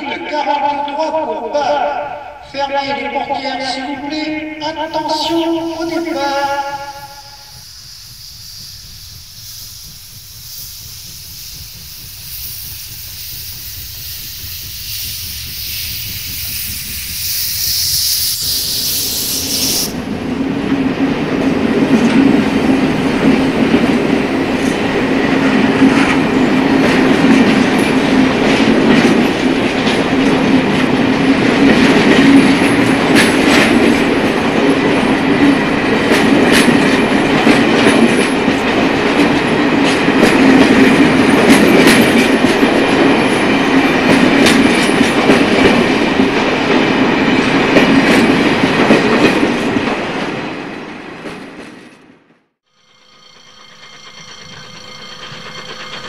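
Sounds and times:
passenger train rumbling past: 0.0 - 56.0
wheels clacking over rail joints: 20.3 - 50.4, 52.8 - 56.0.

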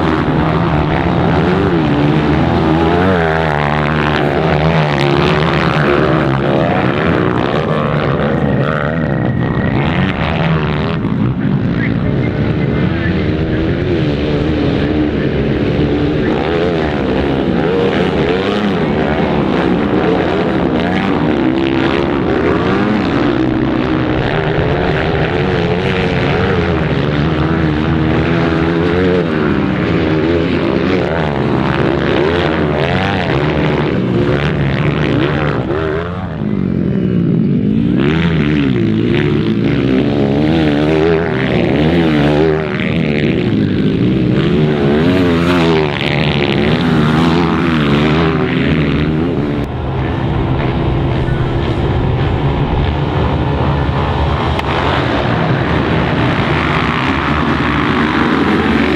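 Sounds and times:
dirt bike engines racing: 0.0 - 58.9.

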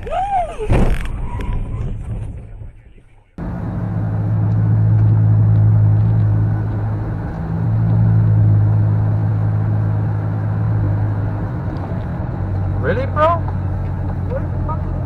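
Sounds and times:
car engine drone: 0.9 - 15.0
road noise inside car: 3.2 - 15.0.

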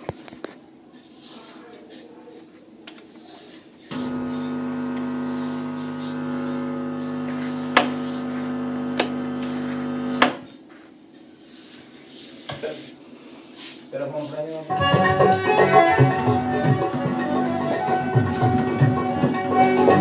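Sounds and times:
speaker buzzing hum: 3.9 - 10.5
sharp clicks: 7.7 - 8.0, 8.9 - 9.5.

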